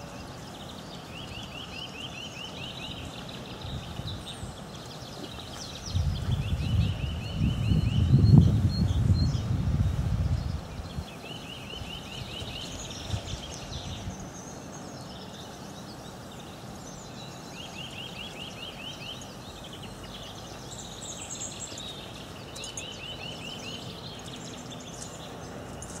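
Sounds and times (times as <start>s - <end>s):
background hiss: 0.0s - 26.0s
songbirds singing: 0.0s - 26.0s.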